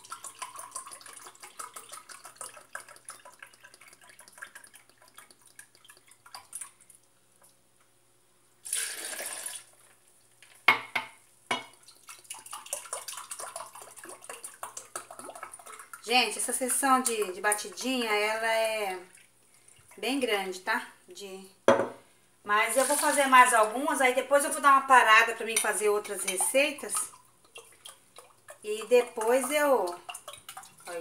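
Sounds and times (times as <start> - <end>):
liquid poured over ice: 8.6 - 10.0, 22.7 - 23.3
glass knocking on stone counter: 10.7 - 11.7, 21.7 - 22.0.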